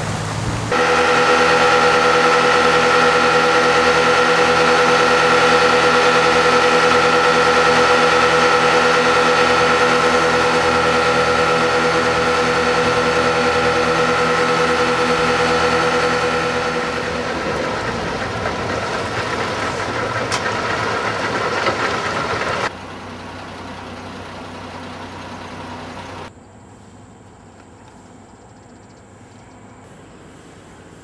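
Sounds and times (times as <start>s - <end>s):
water rushing: 0.0s - 22.7s
outboard motor running: 0.0s - 26.3s.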